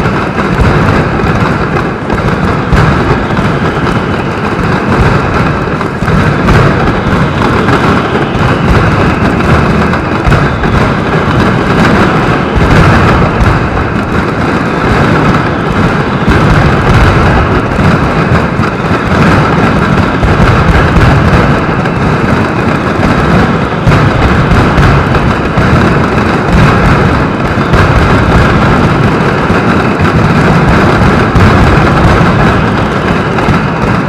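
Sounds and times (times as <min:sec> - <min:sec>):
firecrackers exploding in a barrage: 0:00.0 - 0:34.0.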